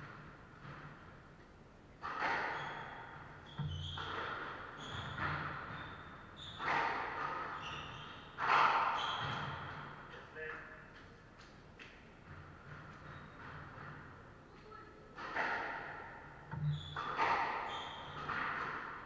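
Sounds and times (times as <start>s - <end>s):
shoes squeaking on wooden floor: 2.2s - 10.0s, 12.1s - 14.8s, 16.4s - 19.0s.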